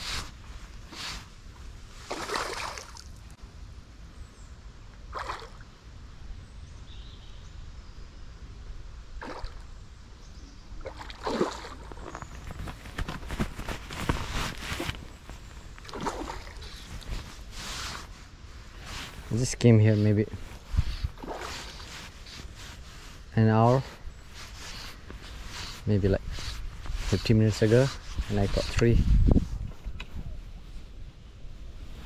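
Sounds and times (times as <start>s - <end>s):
water splashing and sloshing: 0.0s - 3.4s, 5.1s - 5.7s, 9.2s - 9.8s, 10.8s - 23.3s.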